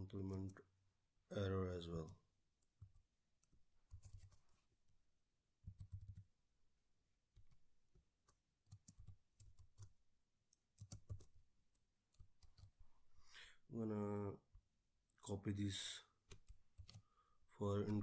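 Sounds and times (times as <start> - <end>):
keyboard typing: 2.0 - 4.5, 5.6 - 6.3, 7.3 - 12.8, 16.3 - 17.1.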